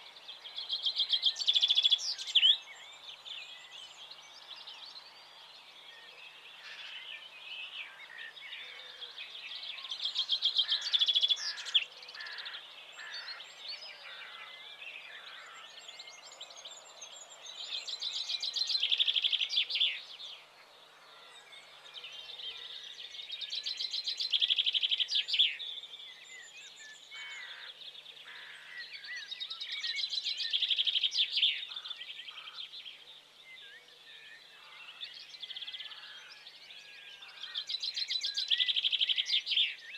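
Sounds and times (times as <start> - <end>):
bird singing high chirps: 33.5 - 39.9.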